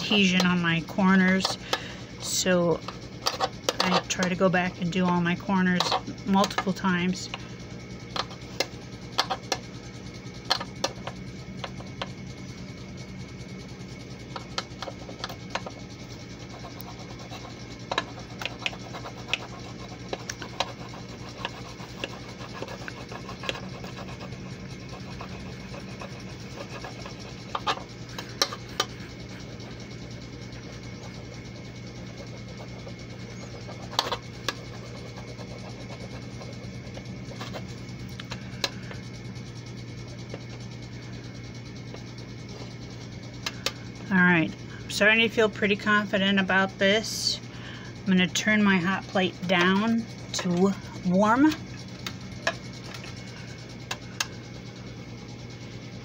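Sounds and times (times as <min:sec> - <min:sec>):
steady low hum: 0:00.0 - 0:56.0
sharp clicks and scrapes: 0:02.8 - 0:04.4, 0:33.3 - 0:36.2
metal tool rubbing on paper: 0:16.4 - 0:29.8, 0:32.0 - 0:37.8.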